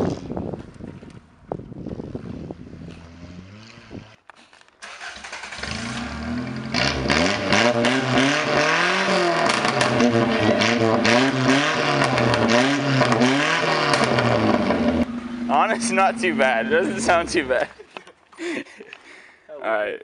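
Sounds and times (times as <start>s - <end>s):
car engine revving: 2.8s - 4.2s, 4.8s - 17.7s.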